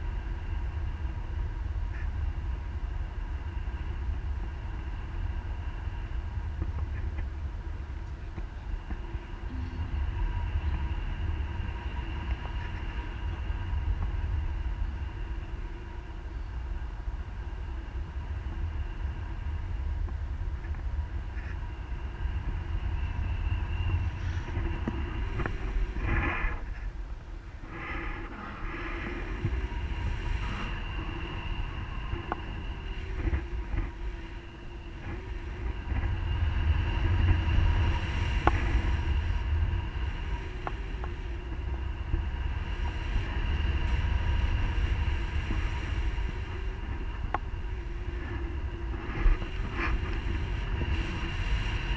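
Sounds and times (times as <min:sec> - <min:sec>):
wind rushing over microphone: 0:00.0 - 0:51.9
faint steady high tones: 0:07.5 - 0:19.9.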